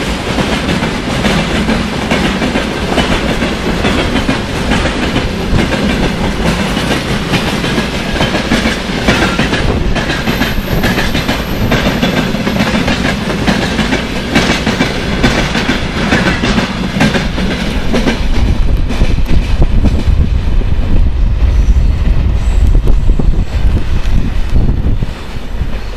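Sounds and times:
train wheels clattering over rails: 0:00.0 - 0:21.1
wind buffeting microphone: 0:00.0 - 0:25.9.

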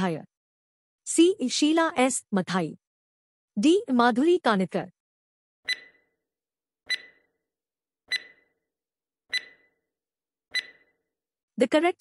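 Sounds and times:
electronic tick-beeps: 0:05.7 - 0:06.0, 0:06.9 - 0:07.3, 0:08.1 - 0:08.6, 0:09.3 - 0:09.8, 0:10.5 - 0:11.0.

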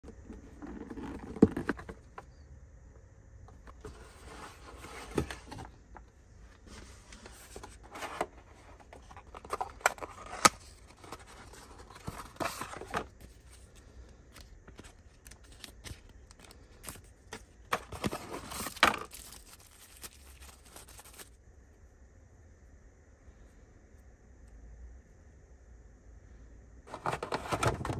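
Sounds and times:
cardboard box being opened: 0:00.1 - 0:02.2, 0:03.8 - 0:05.8, 0:06.6 - 0:13.7, 0:14.4 - 0:21.3
tissue paper rustling: 0:17.9 - 0:21.4.

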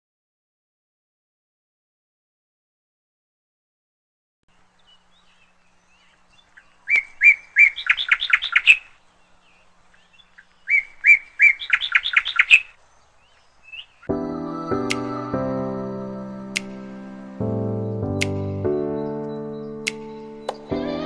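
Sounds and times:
bird singing: 0:04.5 - 0:21.0.

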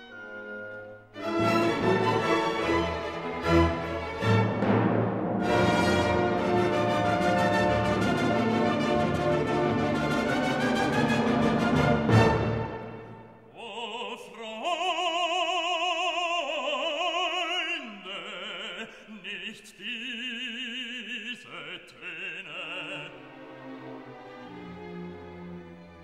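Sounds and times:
loud orchestral chord: 0:00.0 - 0:13.3
orchestral accompaniment: 0:00.0 - 0:13.5, 0:23.0 - 0:26.0
operatic voice singing: 0:13.5 - 0:23.4.

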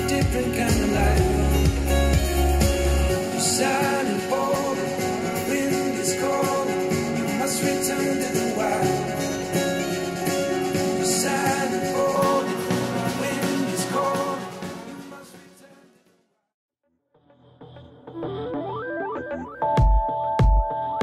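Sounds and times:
song with guitar and singing: 0:00.0 - 0:15.9.

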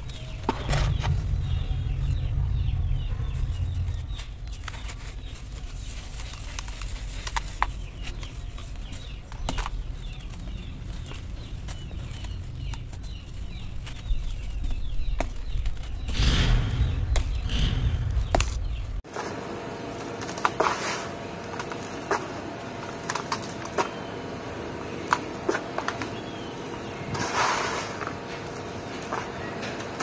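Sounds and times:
hands crunching dry dirt: 0:00.0 - 0:19.0
low rumble: 0:00.0 - 0:19.0.

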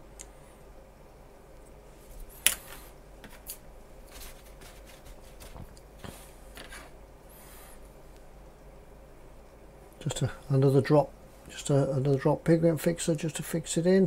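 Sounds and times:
rubbing on cutting mat: 0:04.1 - 0:07.0.

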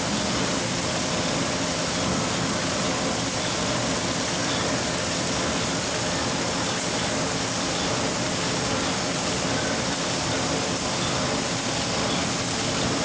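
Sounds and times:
bag machine running: 0:00.0 - 0:13.0.

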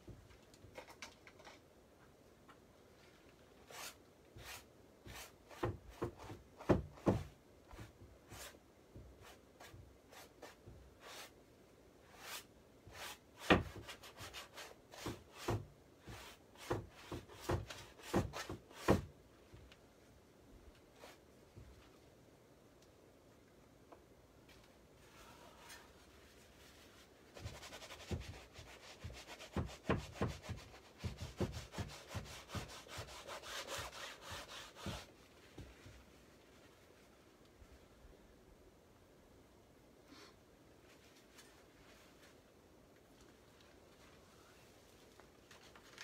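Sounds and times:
paintbrush scrubbing on canvas: 0:26.2 - 0:35.2.

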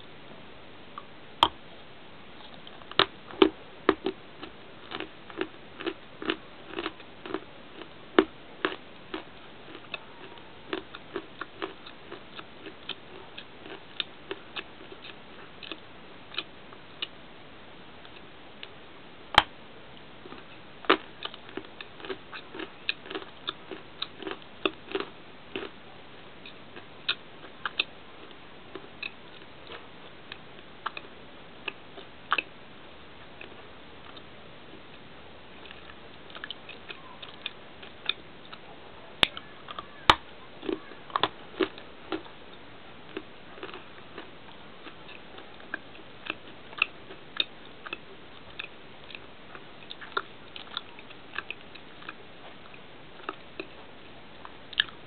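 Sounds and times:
crunchy bar chewing: 0:02.4 - 0:17.2, 0:20.2 - 0:25.8, 0:26.4 - 0:32.5, 0:39.2 - 0:55.0.

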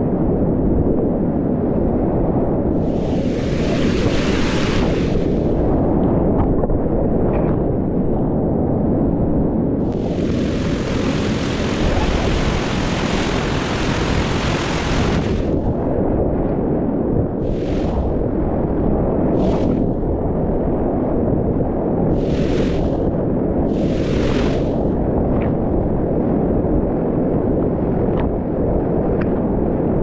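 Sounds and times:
water splashing hiss: 0:02.8 - 0:05.5, 0:09.9 - 0:15.6, 0:17.4 - 0:18.2, 0:22.1 - 0:23.0, 0:23.7 - 0:24.9.

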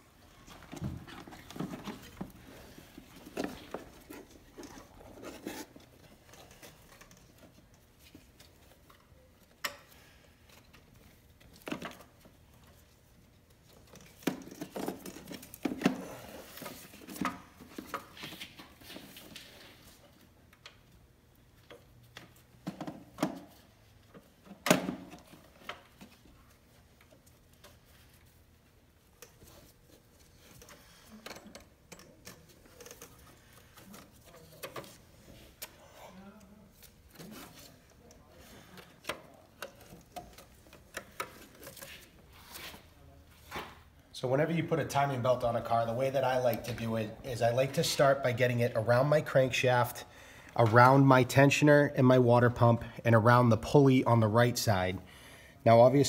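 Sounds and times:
gloves rubbing and rustling: 0:00.0 - 0:09.5, 0:25.3 - 0:31.1.

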